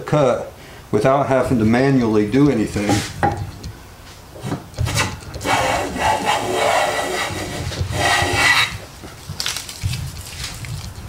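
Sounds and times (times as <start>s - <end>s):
hand plane shaving wood: 4.5s - 8.9s.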